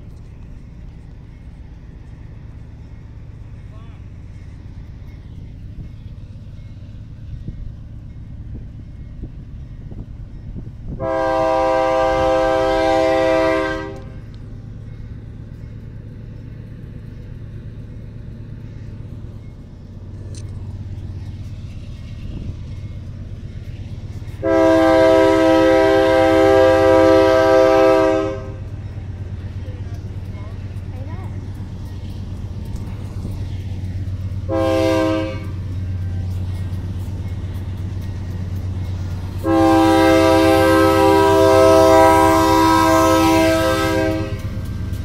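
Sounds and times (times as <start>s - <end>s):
locomotive rumble: 0.0s - 45.0s
locomotive air horn blasts: 11.0s - 14.2s, 24.4s - 28.7s, 34.5s - 35.6s, 39.4s - 44.6s.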